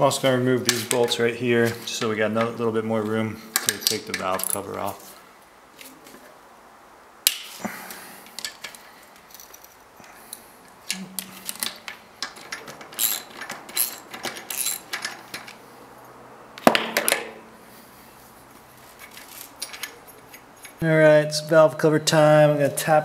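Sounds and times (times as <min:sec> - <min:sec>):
wrench clinking on metal bolts: 0:03.6 - 0:04.7, 0:10.9 - 0:15.6, 0:19.0 - 0:20.8
metal clank: 0:10.9 - 0:15.5.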